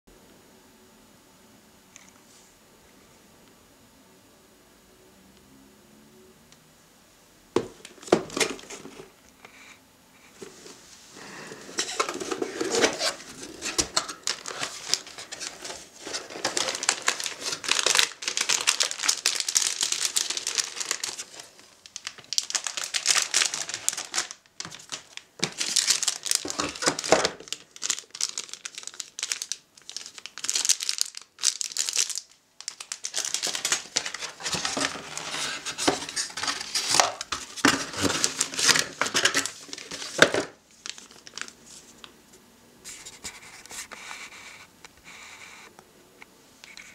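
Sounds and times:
plastic packaging crinkling: 7.8 - 9.1, 11.2 - 42.1.

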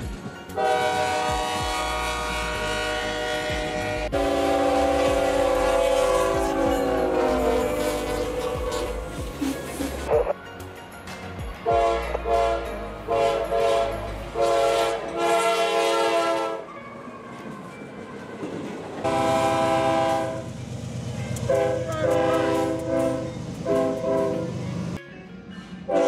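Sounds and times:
train wheel noise: 0.0 - 10.4, 11.1 - 26.0
locomotive air horn blasts: 0.6 - 9.2, 11.7 - 16.7, 19.0 - 20.5, 21.4 - 24.5.

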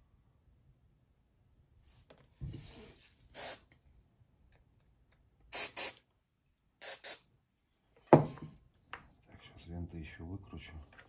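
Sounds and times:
aerosol spray hissing: 3.3 - 3.7, 5.5 - 6.0, 6.8 - 7.2.

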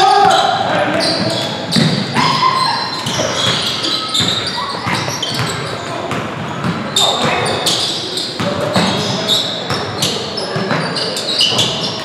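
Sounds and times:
players shouting: 0.0 - 6.0
sneakers squeaking: 0.0 - 12.0
basketball dribbling thuds: 0.2 - 2.2, 2.9 - 7.8, 8.4 - 10.9.

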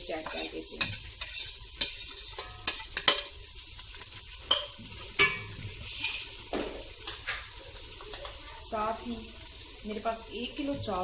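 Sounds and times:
metal spoon scraping a pot: 0.0 - 6.4
food sizzling in a pot: 0.0 - 11.0
spoon clinking on pot: 0.3 - 3.4, 4.5 - 6.2.

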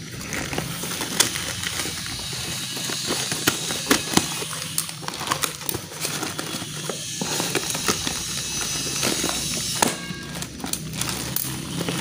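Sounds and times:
plastic bag crinkling: 0.0 - 12.0
scissors cutting plastic: 0.0 - 12.0.

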